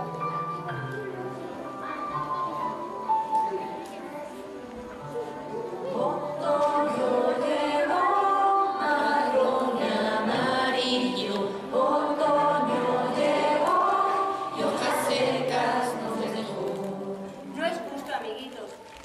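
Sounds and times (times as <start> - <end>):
group singing slow children's song: 5.6 - 17.6.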